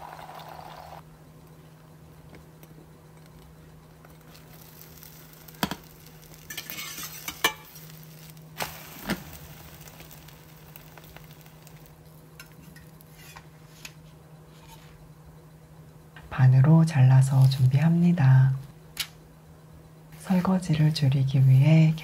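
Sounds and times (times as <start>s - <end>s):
crepe sizzling in frying pan: 4.2s - 13.8s
utensils scraping and tapping pan: 6.5s - 7.7s, 12.4s - 14.0s.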